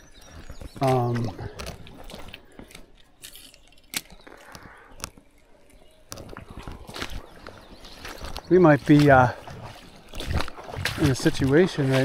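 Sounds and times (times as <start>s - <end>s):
fishing rod and reel handling: 1.5s - 7.5s.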